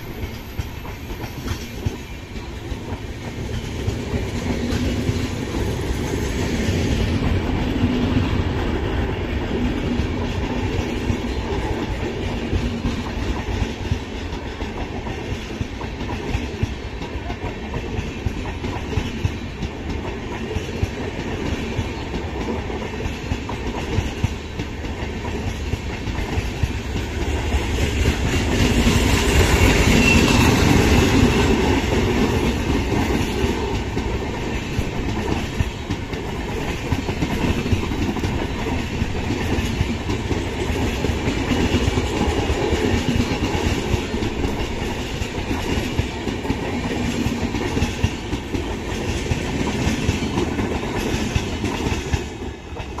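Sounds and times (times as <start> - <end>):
train wheels clattering on rails: 0.0 - 53.0.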